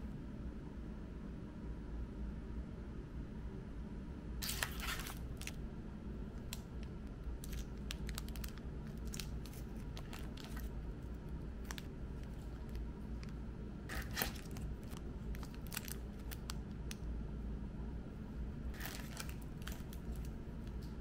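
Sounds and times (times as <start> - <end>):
cellophane wrappers crinkling: 4.4 - 5.6, 6.4 - 17.0, 18.7 - 20.8.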